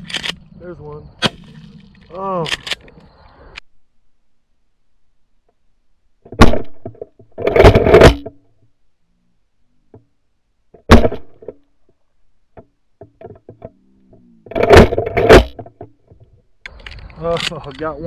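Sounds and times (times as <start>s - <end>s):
shotgun shot: 6.4s - 6.8s.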